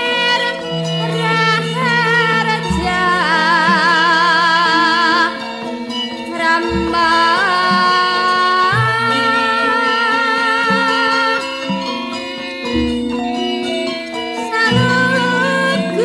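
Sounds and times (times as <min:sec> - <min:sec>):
low struck notes: 0:00.0 - 0:07.9, 0:11.6 - 0:16.0
woman singing with vibrato: 0:00.0 - 0:12.1, 0:14.4 - 0:16.0
ringing bronze percussion: 0:00.0 - 0:16.0.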